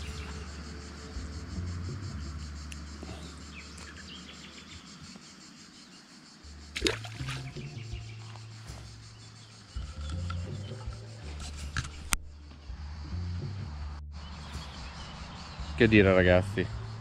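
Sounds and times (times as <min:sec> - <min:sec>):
insects chirping faintly: 0:00.0 - 0:17.0
fish splashing into water: 0:06.7 - 0:07.7.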